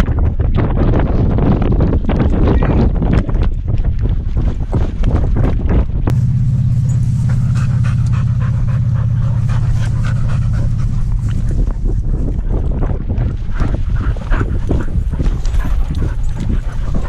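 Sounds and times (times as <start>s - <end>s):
steady low drone: 6.0s - 17.0s
dog panting: 6.1s - 17.0s.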